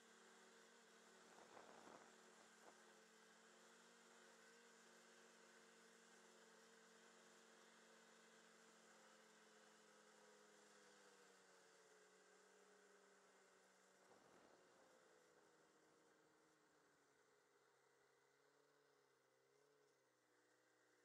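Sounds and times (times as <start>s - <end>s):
faint snowmobile engine hum: 0.0s - 21.0s.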